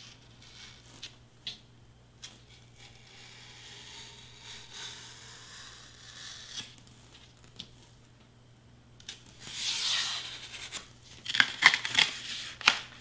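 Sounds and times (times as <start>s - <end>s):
knife cutting foam board: 2.3s - 6.8s.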